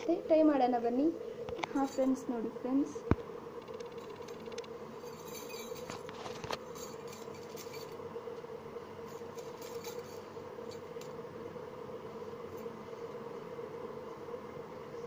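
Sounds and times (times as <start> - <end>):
steady background hum: 0.0 - 15.0
bangles clinking together: 5.0 - 5.9.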